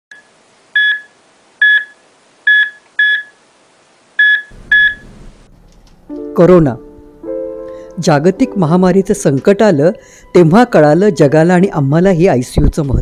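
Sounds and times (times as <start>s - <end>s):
cardiac monitor beeping: 0.1s - 3.4s, 4.2s - 5.6s.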